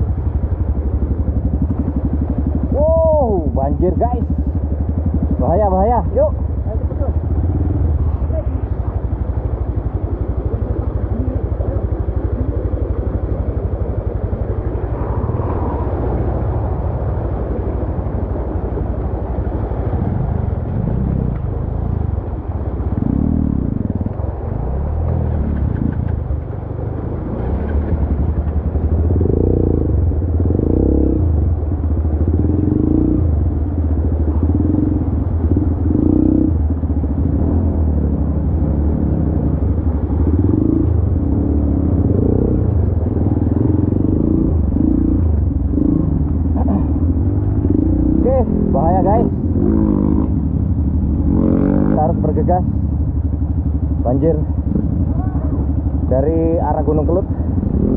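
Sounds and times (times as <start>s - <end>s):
dirt bike engine revving: 34.2s - 52.7s, 54.0s - 57.9s.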